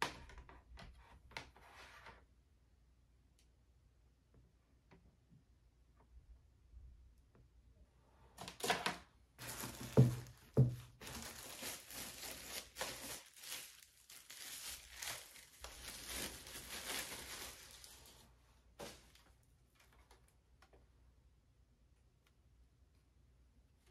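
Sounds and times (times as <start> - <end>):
packaging crinkling and tearing: 9.4 - 18.2.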